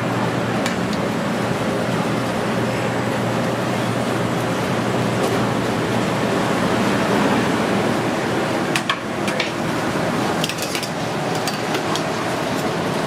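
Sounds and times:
steady rushing noise: 1.1 - 11.3.

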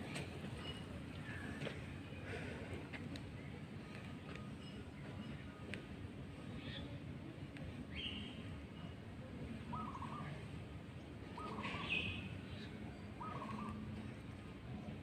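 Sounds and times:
bird calling: 9.7 - 10.4, 11.3 - 12.4, 13.2 - 14.0.

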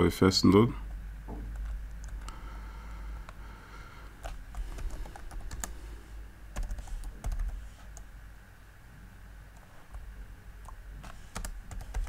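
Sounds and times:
typing on computer keyboard: 1.5 - 2.3, 4.2 - 5.8, 6.6 - 7.6, 10.6 - 12.0.

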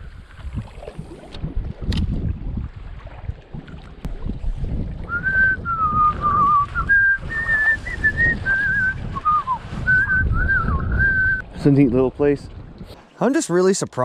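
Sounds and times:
wind rumble on microphone: 0.0 - 13.0
person whistling a tune: 5.1 - 11.4.

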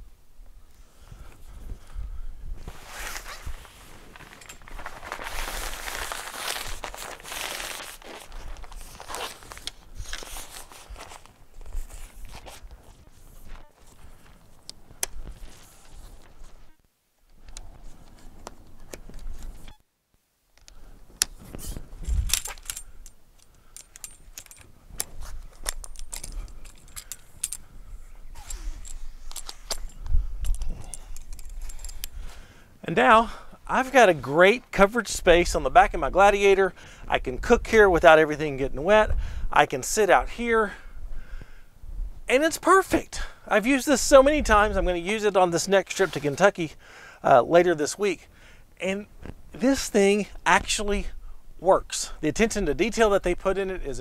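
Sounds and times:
awning fabric rustling: 2.6 - 16.7.

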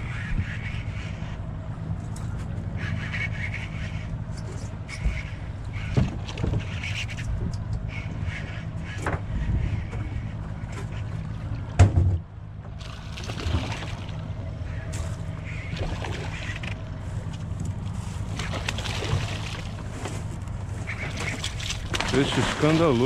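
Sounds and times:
motorboat engine at low revs: 0.0 - 23.0
water splashing: 12.8 - 14.4, 15.4 - 20.2, 20.8 - 23.0.

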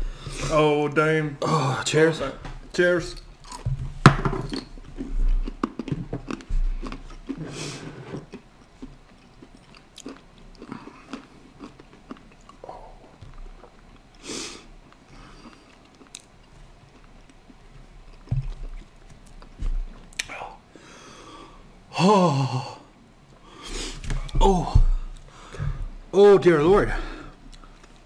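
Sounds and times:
peanuts being chewed: 3.4 - 3.7, 4.5 - 20.4.

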